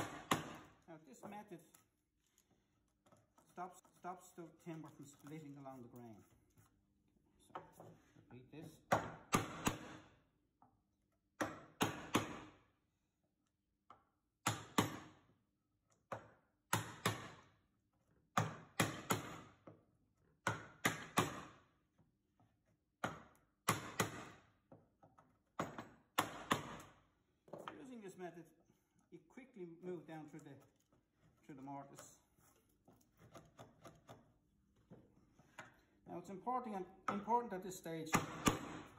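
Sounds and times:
mallet striking chisel into wood: 0.0s - 0.8s, 8.9s - 10.0s, 11.4s - 12.6s, 14.4s - 15.2s, 16.1s - 17.5s, 18.4s - 19.8s, 20.4s - 21.6s, 23.0s - 24.5s, 25.1s - 27.0s, 38.1s - 38.9s.

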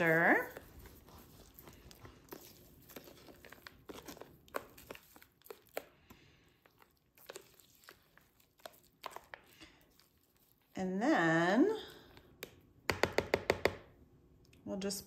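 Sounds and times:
plastic spoon scraping in bowl: 0.0s - 6.0s.

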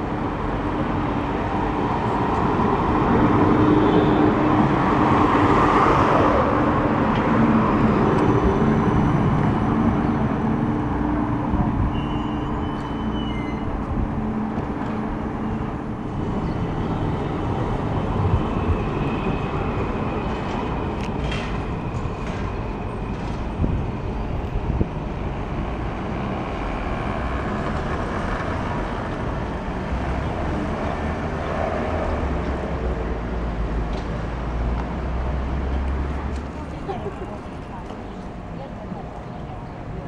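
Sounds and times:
deep rumble of passing tram: 0.0s - 40.0s
electric trams running: 0.0s - 40.0s.

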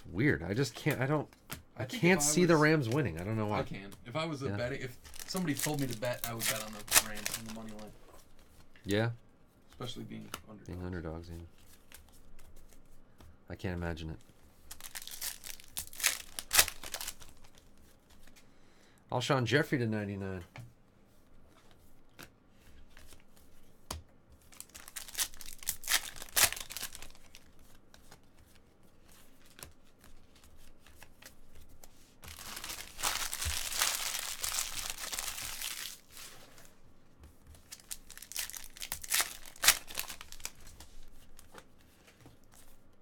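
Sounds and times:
foil wrapper crinkling and tearing: 5.0s - 7.9s, 14.7s - 17.6s, 24.5s - 27.5s, 32.3s - 36.4s, 37.6s - 41.5s.

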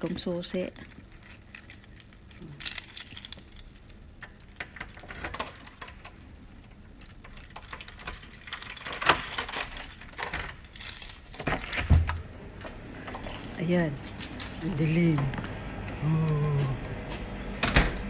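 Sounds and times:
metal keys jangling: 0.0s - 12.3s, 13.0s - 15.3s
key worked into door lock: 0.6s - 12.2s.

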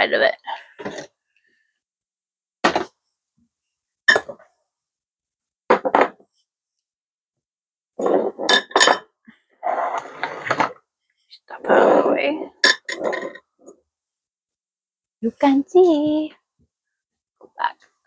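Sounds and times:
glass dishes clinking: 4.1s - 4.4s, 8.4s - 9.2s, 12.6s - 13.4s.

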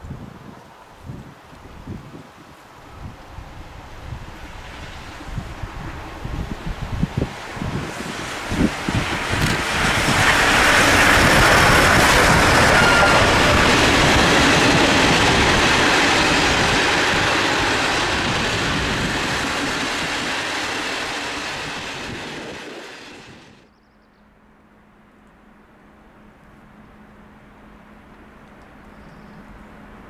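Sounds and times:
train coaches rolling on rails: 3.7s - 23.6s.

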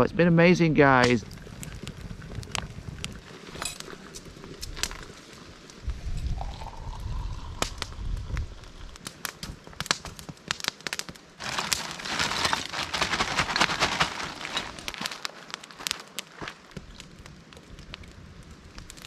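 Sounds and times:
campfire crackling and popping: 0.0s - 19.0s.

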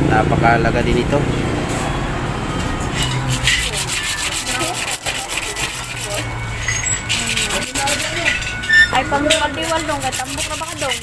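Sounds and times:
rubbing strokes on bicycle part: 3.1s - 11.0s.

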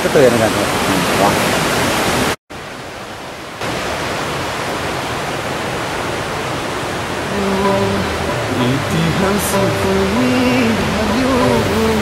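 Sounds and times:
background music notes: 7.4s - 12.0s.

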